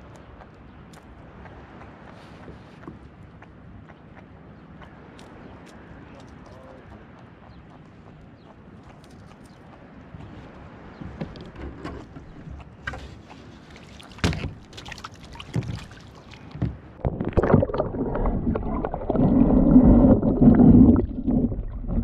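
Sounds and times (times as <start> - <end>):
water splashing: 12.7 - 22.0
knocks against kayak: 14.2 - 14.7
underwater rumbling and gurgling: 14.4 - 22.0.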